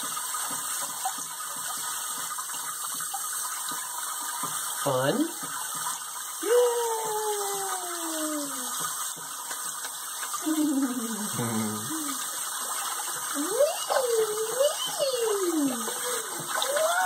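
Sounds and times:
faucet spray running: 0:00.0 - 0:17.0
baby vocalizing: 0:10.4 - 0:12.2, 0:13.4 - 0:17.0.

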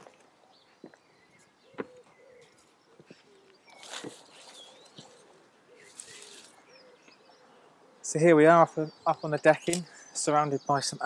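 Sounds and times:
small birds chirping: 0:00.0 - 0:11.0
pigeon cooing: 0:01.6 - 0:08.1
brief rustle: 0:03.7 - 0:05.2, 0:05.8 - 0:06.6.

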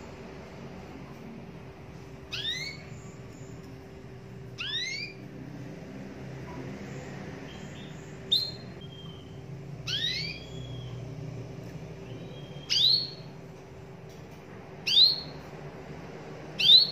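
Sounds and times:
steady low hum: 0:00.0 - 0:16.9
canary chirping: 0:01.9 - 0:05.5, 0:06.6 - 0:13.6, 0:14.8 - 0:15.6, 0:16.5 - 0:16.9.

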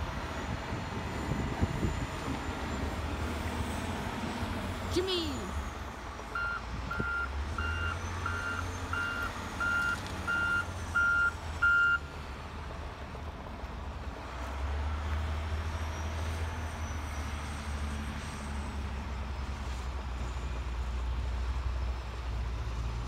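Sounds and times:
reversing alarm beeping: 0:06.3 - 0:12.1.

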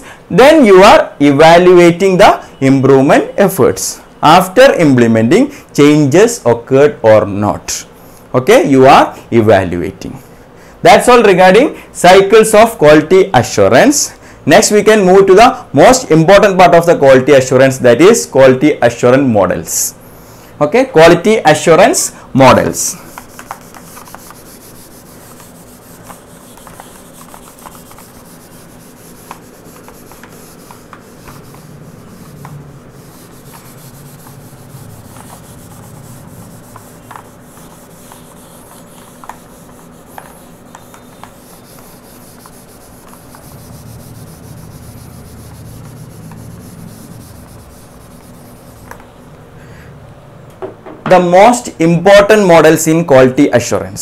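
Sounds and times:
eraser rubbing on whiteboard: 0:21.7 - 0:49.2.

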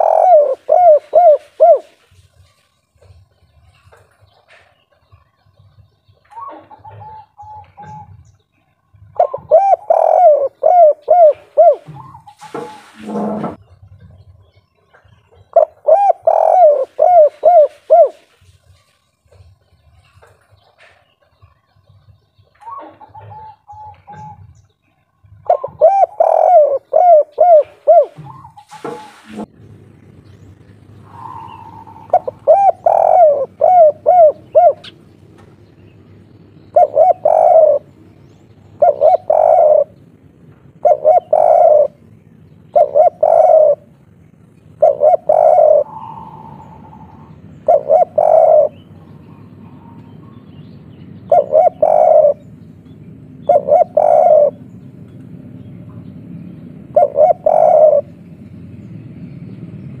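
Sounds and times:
dove cooing: 0:00.0 - 0:02.2, 0:06.2 - 0:08.3, 0:08.9 - 0:13.6, 0:15.4 - 0:19.6, 0:22.6 - 0:24.6, 0:25.2 - 0:29.5, 0:30.8 - 0:50.5, 0:51.1 - 0:55.1, 0:56.8 - 0:58.3.

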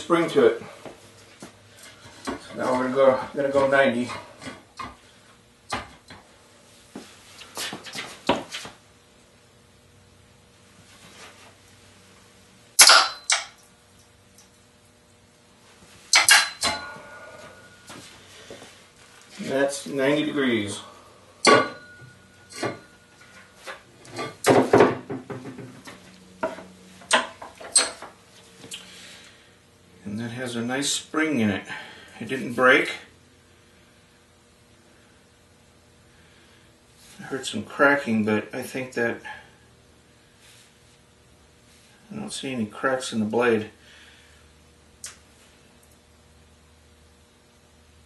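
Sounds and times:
steel blade creaking and snapping: 0:12.8 - 0:13.6.

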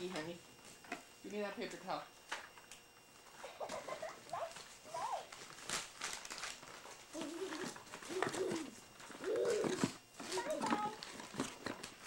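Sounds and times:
child whiny hum: 0:03.4 - 0:05.3, 0:07.1 - 0:11.0.

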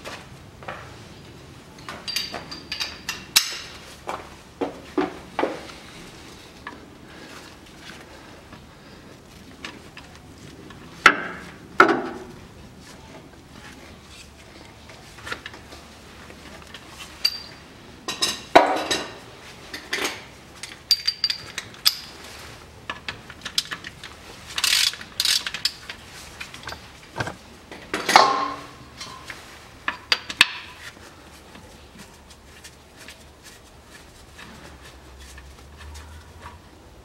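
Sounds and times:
metal tools clanking: 0:01.8 - 0:03.6, 0:17.2 - 0:17.6, 0:26.6 - 0:27.4.

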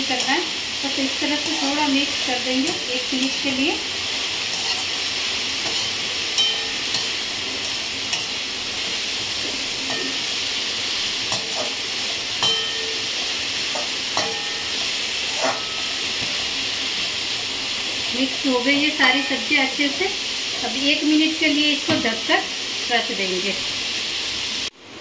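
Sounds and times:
vegetables sizzling in pan: 0:00.0 - 0:25.0
metal spoon scraping pan: 0:01.2 - 0:03.6, 0:04.4 - 0:10.4, 0:11.3 - 0:17.1.

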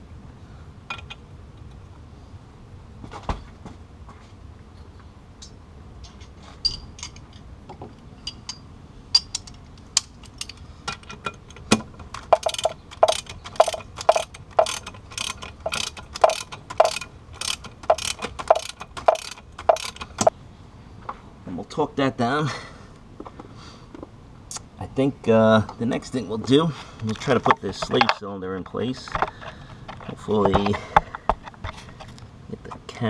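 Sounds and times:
socket ratchet clicking: 0:09.2 - 0:20.3.

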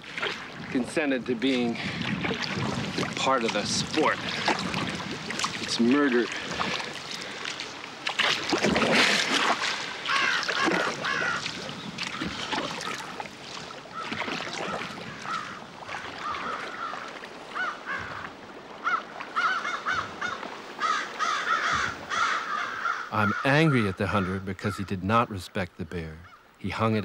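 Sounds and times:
canoe paddle splashing water: 0:00.0 - 0:23.0
flock of birds calling: 0:09.9 - 0:13.2, 0:13.9 - 0:24.8.

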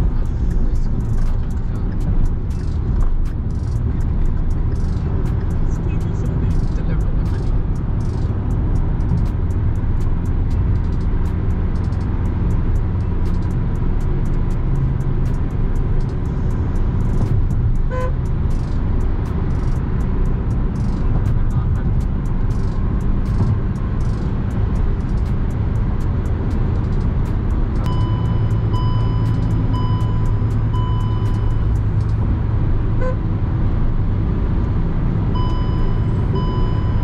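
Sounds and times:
car cabin road and engine noise: 0:00.0 - 0:37.0
electronic beep: 0:27.9 - 0:31.8, 0:35.4 - 0:37.0.

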